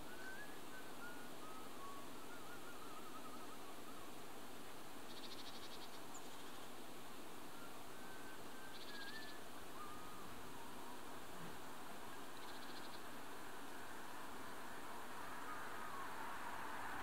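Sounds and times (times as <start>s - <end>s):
faint thin whistled notes: 0.0s - 4.2s, 7.5s - 11.0s, 15.4s - 17.0s
steady hiss: 0.0s - 17.0s.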